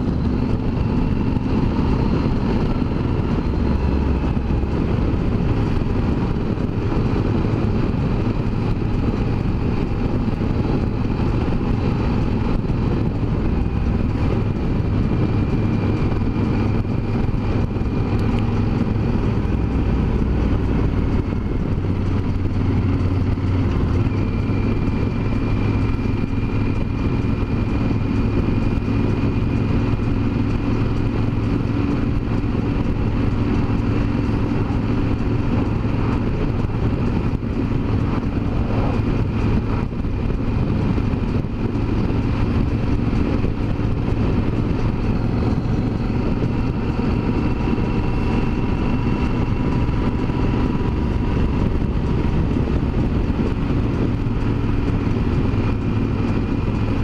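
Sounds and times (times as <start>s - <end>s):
motorcycle engine cruising: 0.0s - 57.0s
wind and road noise: 0.0s - 57.0s.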